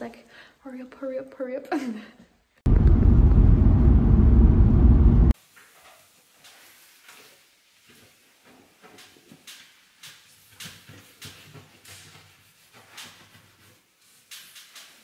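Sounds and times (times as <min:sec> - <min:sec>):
sponge scrubbing: 0:05.8 - 0:15.0.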